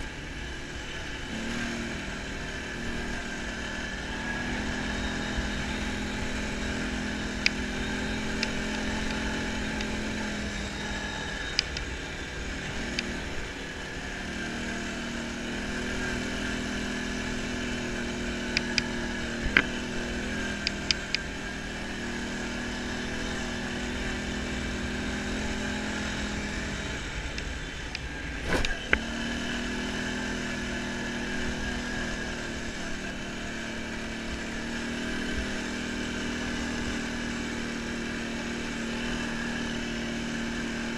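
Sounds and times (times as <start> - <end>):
atv engine running: 0.0 - 40.9.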